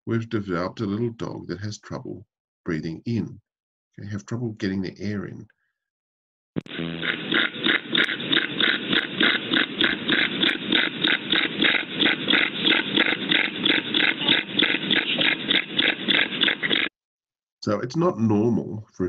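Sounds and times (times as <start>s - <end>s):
dog panting with noisy breathing: 7.4s - 16.9s.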